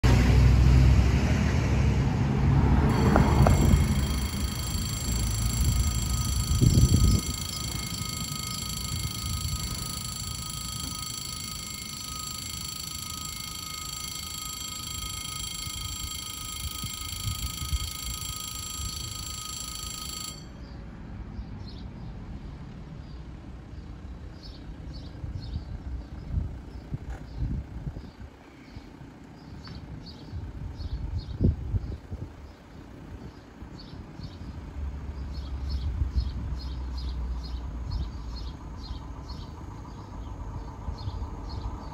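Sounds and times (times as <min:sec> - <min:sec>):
car passing with low rumble: 0:00.0 - 0:08.5
level crossing alarm ringing: 0:02.8 - 0:20.7.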